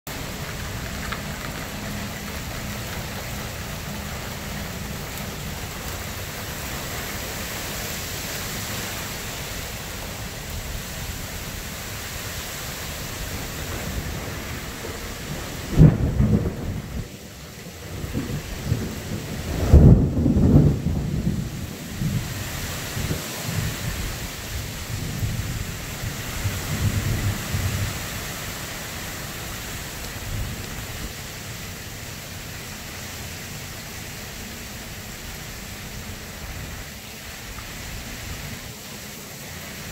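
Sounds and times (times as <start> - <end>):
steady rain: 0.0 - 39.9
thunder booming: 13.6 - 17.1, 17.9 - 22.3.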